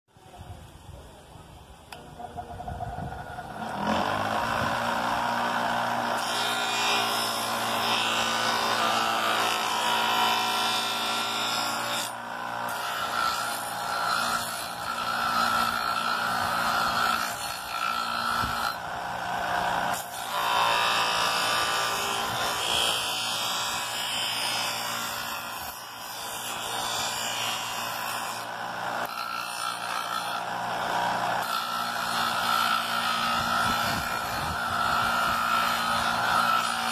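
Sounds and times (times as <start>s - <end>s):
electric motor humming: 1.9s - 36.9s
rasp of sanding: 31.4s - 36.9s.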